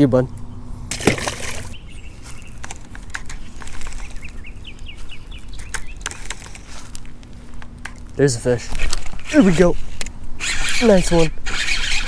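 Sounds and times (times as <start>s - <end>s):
bird chirping: 1.5s - 6.7s.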